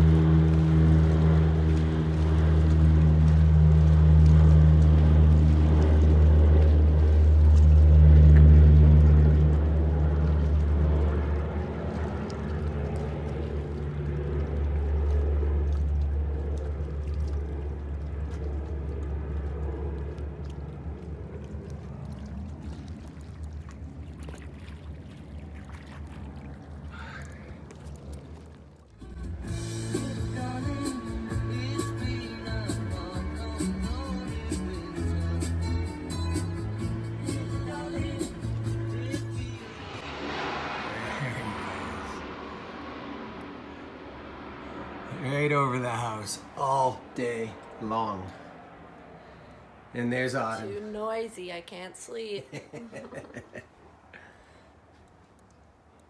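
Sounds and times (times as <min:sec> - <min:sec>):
plane engine and propeller drone: 0:00.0 - 0:56.0.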